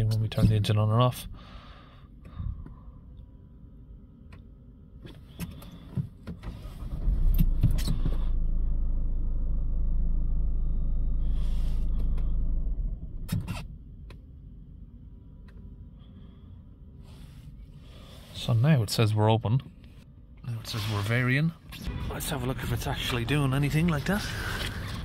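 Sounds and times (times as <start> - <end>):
diesel engine running: 6.8 - 13.3.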